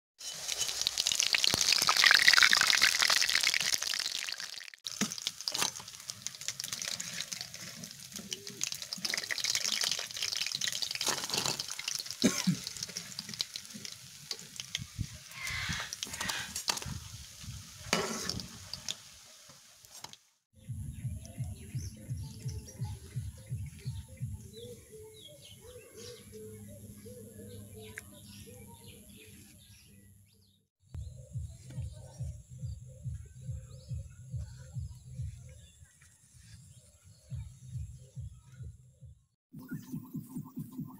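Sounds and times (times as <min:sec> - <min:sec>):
batter deep-frying in hot oil: 0:00.2 - 0:20.4.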